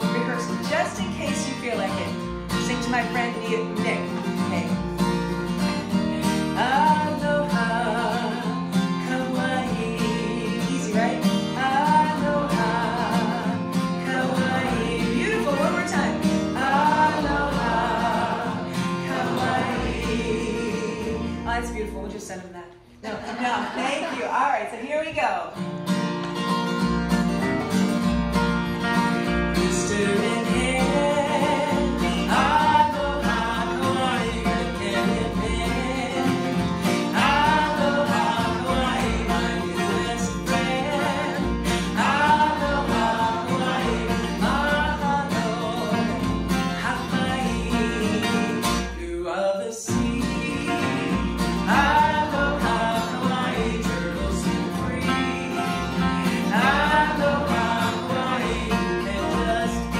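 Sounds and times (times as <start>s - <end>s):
woman singing: 0.0s - 4.8s, 6.4s - 21.9s, 29.6s - 36.4s
acoustic guitars playing: 0.0s - 59.9s.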